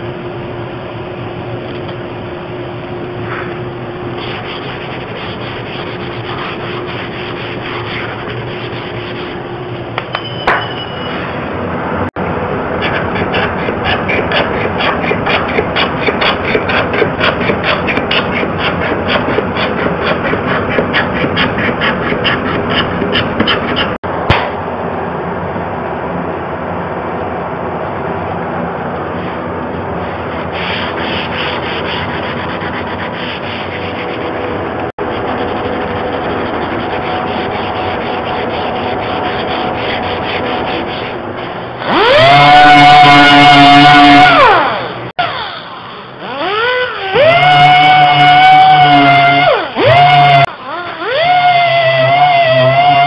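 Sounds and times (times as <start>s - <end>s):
hand-sanding wood: 4.2s - 9.4s, 12.8s - 24.0s, 30.3s - 41.2s
scraper rasping on wooden door: 4.2s - 9.4s, 12.8s - 24.0s, 35.0s - 41.2s.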